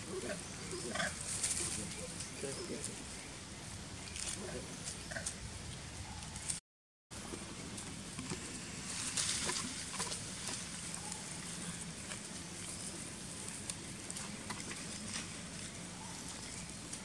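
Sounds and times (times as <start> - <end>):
steady outdoor hiss: 0.0 - 17.0
monkeys scampering over dry leaves: 0.3 - 3.0, 8.3 - 17.0.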